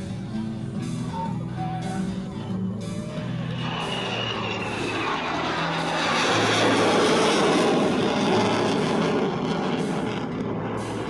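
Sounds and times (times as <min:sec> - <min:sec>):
music with steady bass line: 0:00.0 - 0:04.6
fighter jets flying past: 0:01.9 - 0:11.0.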